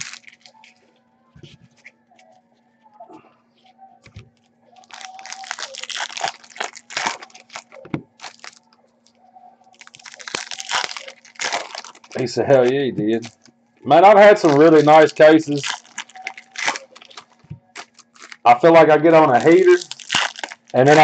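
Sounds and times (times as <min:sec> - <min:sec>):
wrapper tearing and crinkling: 0:00.0 - 0:00.8, 0:04.8 - 0:08.6, 0:09.7 - 0:13.5, 0:14.2 - 0:18.5, 0:19.2 - 0:21.0
faint steady hum: 0:00.0 - 0:21.0.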